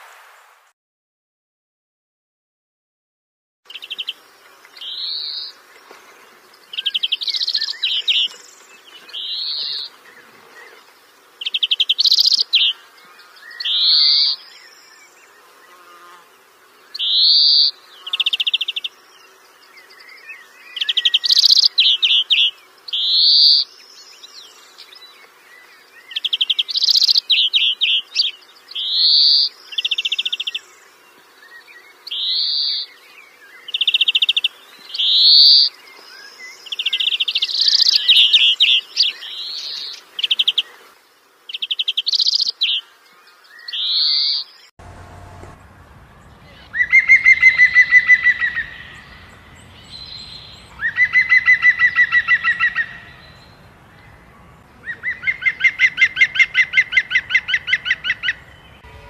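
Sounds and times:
long rattling bird calls: 10.9s - 15.2s, 19.5s - 23.9s, 25.7s - 35.7s, 36.6s - 40.6s, 45.7s - 53.7s.

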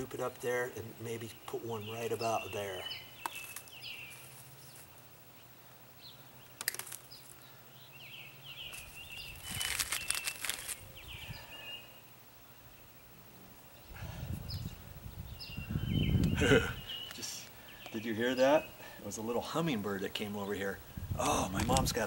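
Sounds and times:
hummingbird wings whirring: 8.6s - 11.4s.

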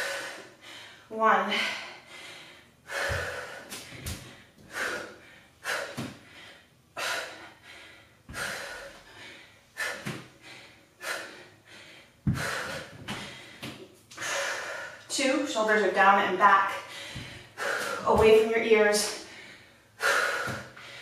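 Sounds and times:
woman breathing hard: 0.0s - 15.1s, 16.7s - 18.2s, 19.0s - 21.0s
dumbbells thudding on floor mat: 17.2s - 18.5s.

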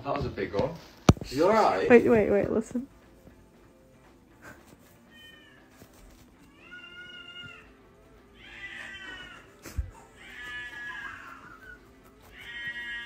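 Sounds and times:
cat meowing: 5.1s - 9.5s, 10.2s - 13.0s.

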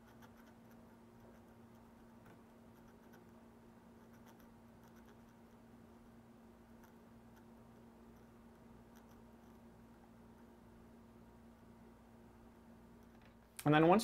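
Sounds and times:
paint marker tip ticking and scratching: 0.0s - 1.9s, 2.7s - 3.4s, 4.0s - 5.6s, 8.1s - 9.6s
faint steady hum: 0.0s - 14.0s.

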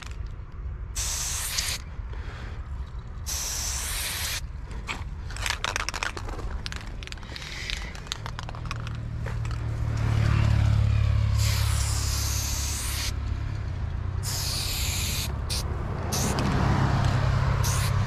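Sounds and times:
spray paint hissing: 0.8s - 4.6s, 7.1s - 8.5s, 11.3s - 13.2s, 14.2s - 18.0s.

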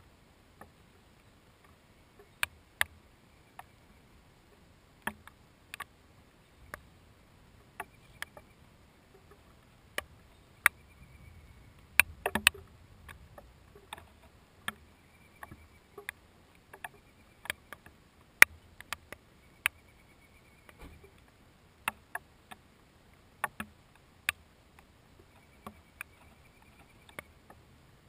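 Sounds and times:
raindrops tapping on plastic housing: 11.8s - 14.8s, 23.4s - 24.4s.

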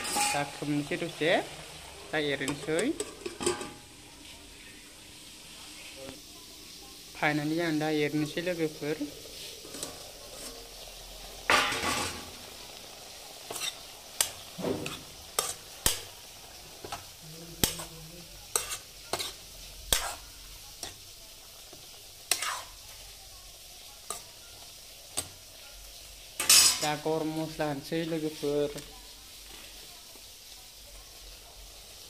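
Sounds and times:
utensil scraping pan: 0.0s - 0.6s, 13.5s - 15.6s, 22.3s - 22.7s
food sizzling in a pan: 0.0s - 32.0s.

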